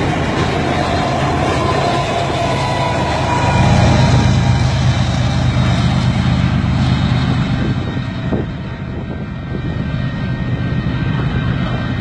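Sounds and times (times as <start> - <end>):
locomotive low rumble and hum: 0.0 - 12.0
rushing rail noise: 0.0 - 12.0.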